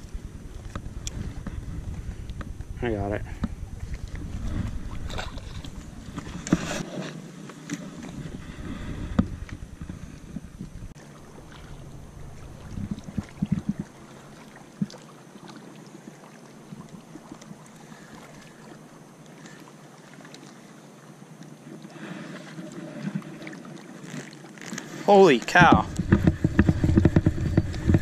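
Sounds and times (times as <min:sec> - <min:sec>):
wind hiss: 0:00.0 - 0:07.1
lapping lake water: 0:00.0 - 0:28.0.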